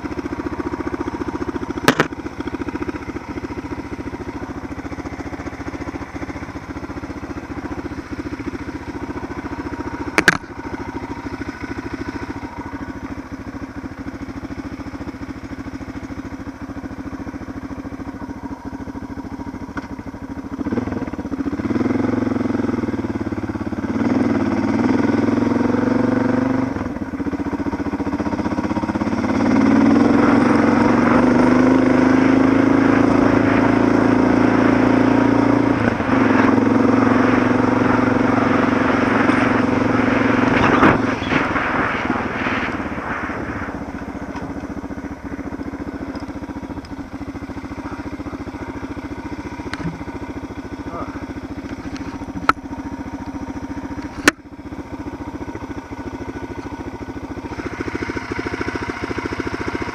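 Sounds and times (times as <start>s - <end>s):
motorcycle engine: 0.0s - 59.9s
tyres on gravel: 39.0s - 52.8s.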